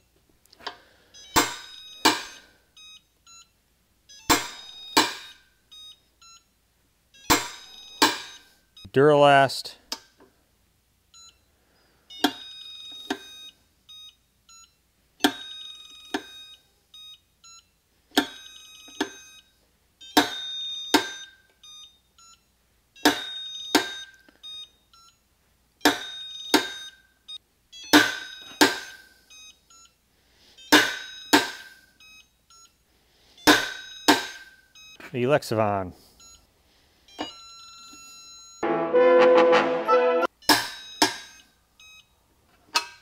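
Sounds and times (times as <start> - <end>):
torque tester beeping: 1.2 - 3.5, 4.1 - 6.5, 12.1 - 17.6, 18.2 - 22.4.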